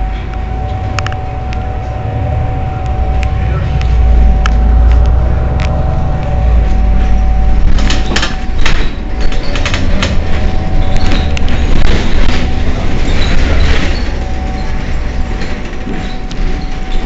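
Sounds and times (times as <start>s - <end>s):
bus engine idling: 0.0s - 17.0s
high hum: 0.0s - 17.0s
sharp clicks and knocks: 7.6s - 13.9s.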